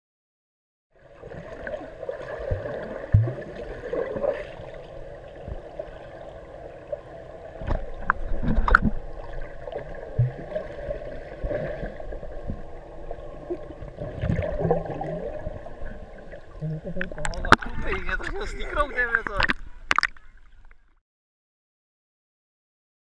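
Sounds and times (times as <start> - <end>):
underwater churning water and bubbles: 1.0 - 20.9.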